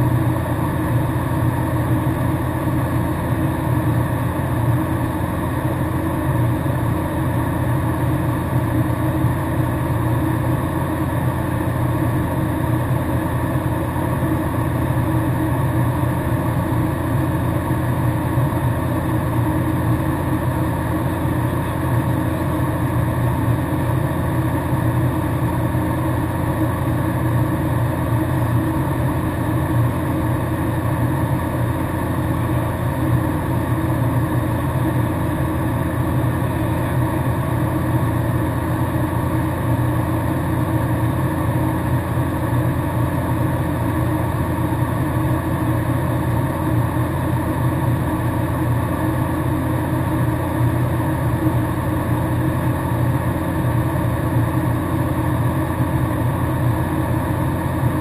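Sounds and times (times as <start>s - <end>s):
propeller plane engine drone: 0.0s - 58.0s.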